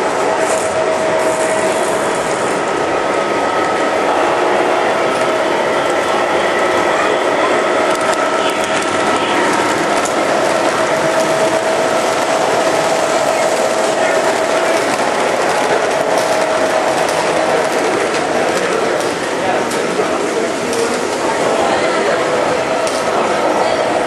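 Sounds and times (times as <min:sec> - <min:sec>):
constant hum: 0:00.0 - 0:24.0
model train wheels clattering: 0:07.7 - 0:21.4, 0:22.8 - 0:23.3.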